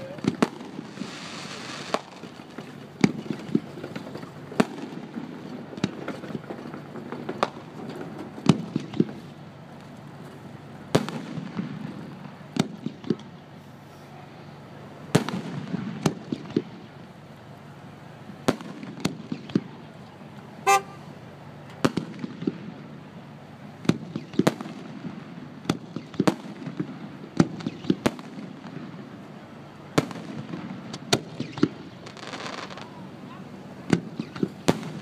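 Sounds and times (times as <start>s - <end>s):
fireworks bangs: 0.0s - 9.3s, 10.9s - 13.4s, 15.1s - 17.0s, 18.4s - 19.9s, 20.6s - 21.0s, 21.8s - 23.0s, 23.8s - 29.2s, 29.9s - 35.0s
crackling fireworks hiss: 0.0s - 35.0s
short horn toot: 20.6s - 21.1s.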